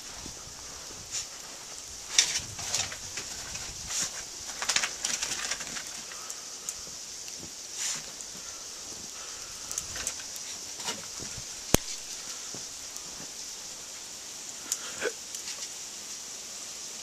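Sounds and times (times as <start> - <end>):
footsteps crunching in snow: 0.0 - 6.1, 7.4 - 9.2, 9.9 - 13.7.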